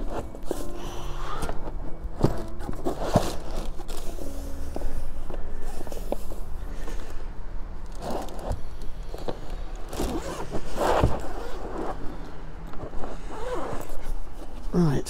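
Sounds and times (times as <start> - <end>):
rustling items in car compartment: 0.0 - 7.2, 7.8 - 12.1.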